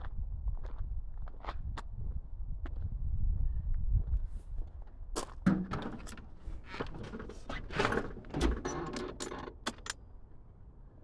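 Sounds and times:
clunks and knocks: 5.4 - 10.0.

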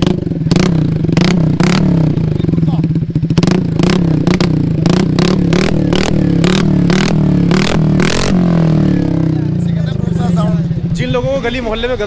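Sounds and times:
scooter engine revving in blips: 0.0 - 9.4.

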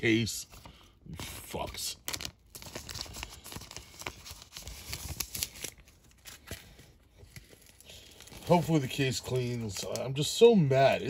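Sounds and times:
plastic bag crinkling: 1.9 - 10.0.

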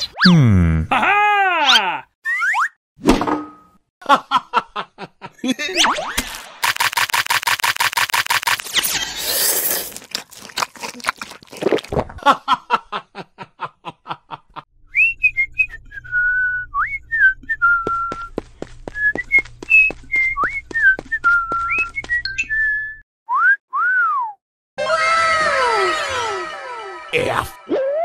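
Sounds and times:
quick run of clicks: 6.6 - 8.8
whistled tune: 14.9 - 18.3, 18.9 - 24.4.

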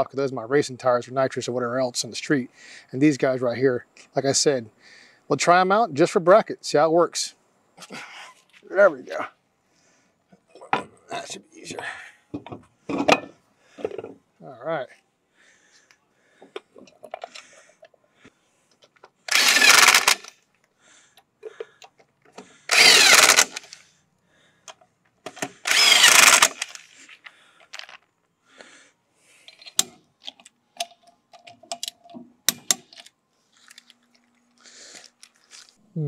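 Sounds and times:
electric impact wrench: 19.3 - 20.3, 22.7 - 23.8, 25.4 - 26.9.

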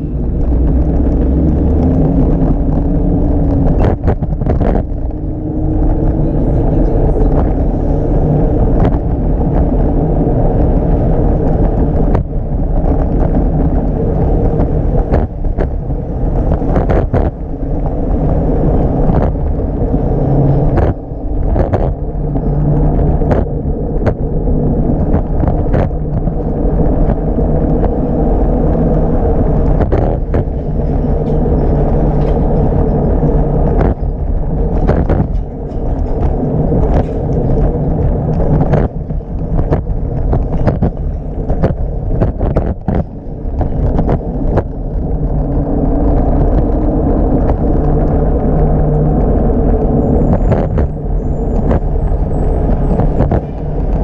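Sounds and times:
wind and road noise: 0.0 - 54.0
knocks and rattles: 11.5 - 45.5.

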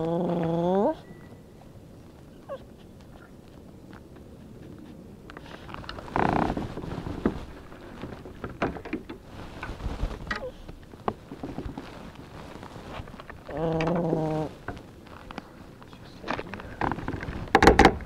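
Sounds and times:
dog whining: 0.0 - 1.4, 2.3 - 3.3, 10.3 - 10.6, 13.4 - 14.6
light clicks and knocks: 16.2 - 18.0.

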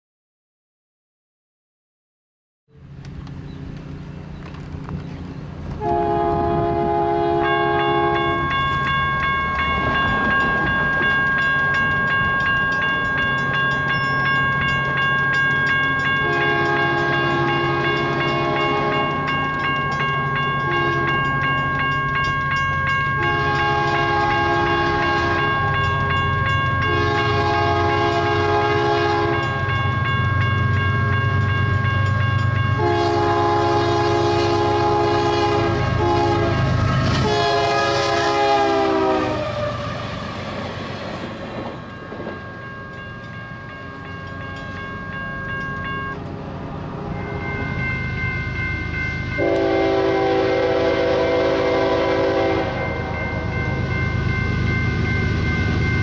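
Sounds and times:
locomotive air horn blasts: 5.8 - 8.5, 16.2 - 19.2, 20.6 - 21.3, 23.2 - 26.0, 26.8 - 29.7, 32.8 - 39.9, 49.4 - 53.5
steady high ringing tone: 7.4 - 33.1, 41.8 - 46.3, 47.0 - 50.1, 52.2 - 56.0.

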